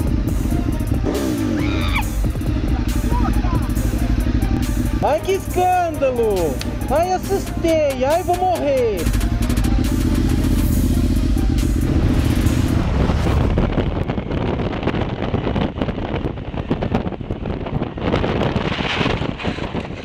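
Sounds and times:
motorcycle engine idling: 0.0s - 12.5s
motorcycle riding: 0.0s - 20.0s
wind buffeting microphone: 11.8s - 20.0s.

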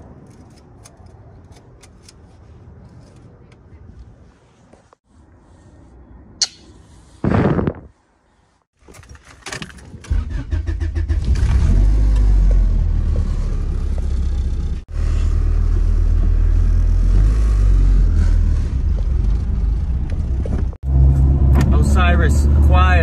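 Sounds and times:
car engine rumbling: 9.2s - 23.0s.

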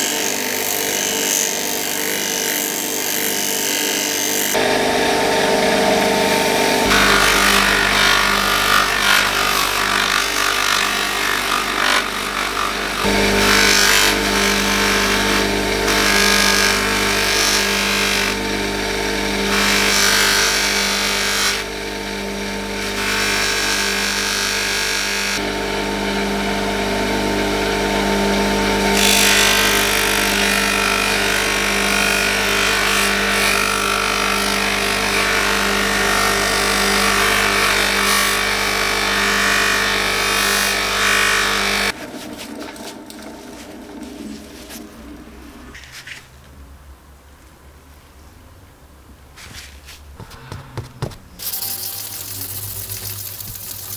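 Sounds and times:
metal scraping on polishing wheel: 51.3s - 53.9s.

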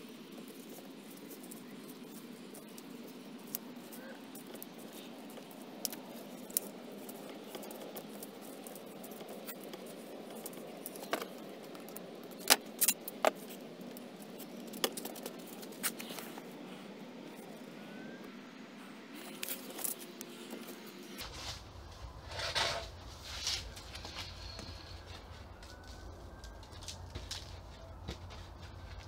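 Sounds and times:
low rushing background: 16.3s - 29.0s
tape being wrapped around pipe: 19.2s - 25.1s.

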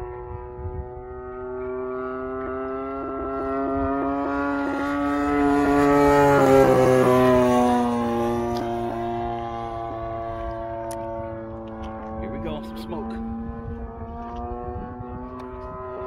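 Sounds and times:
model plane engine fly-by: 0.0s - 16.0s.

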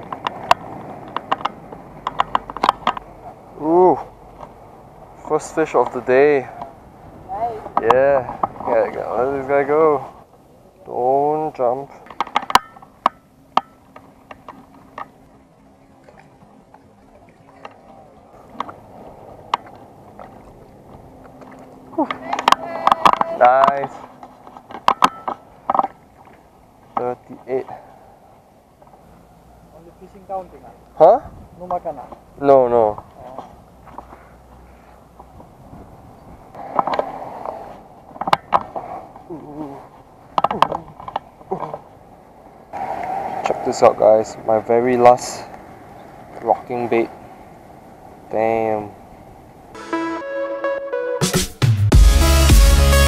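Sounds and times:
sharp handling clicks and knocks: 0.0s - 3.2s, 11.9s - 15.2s, 19.4s - 27.5s, 38.1s - 38.8s, 40.3s - 41.8s
small water splashes: 14.2s - 23.0s.

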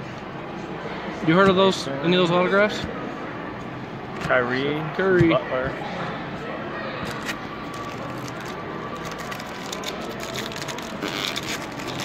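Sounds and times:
busy hall background noise: 0.0s - 12.0s
cards and wrapper rustling: 7.1s - 12.0s.

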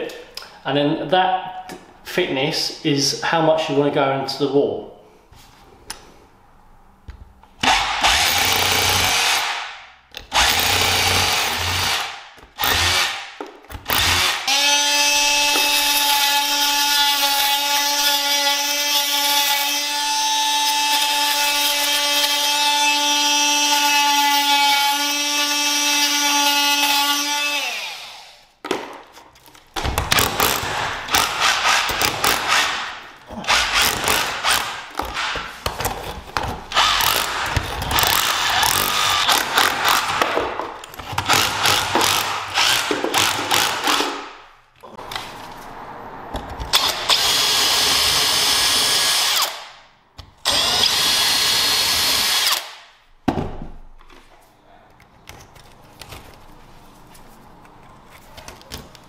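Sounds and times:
chisel drill hammering: 7.6s - 9.7s, 41.1s - 44.3s
drill boring into plaster wall: 7.6s - 13.3s, 13.9s - 28.4s, 33.5s - 35.4s, 36.7s - 40.2s, 41.0s - 44.1s, 46.7s - 49.7s, 50.4s - 52.8s.

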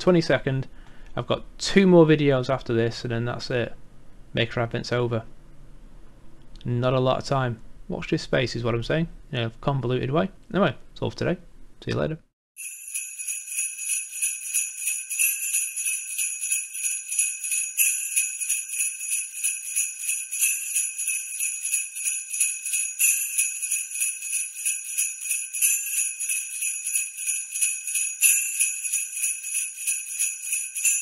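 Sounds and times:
sleigh bells shaken: 12.6s - 31.0s.

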